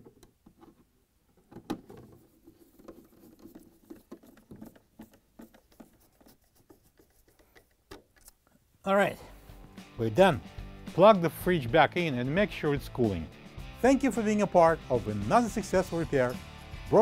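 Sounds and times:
nut driver clicking and scraping: 0:00.0 - 0:08.5.

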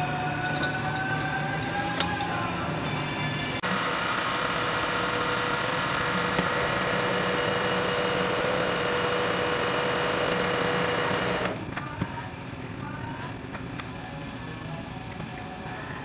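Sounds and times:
milling machine spindle whine: 0:03.6 - 0:11.6.

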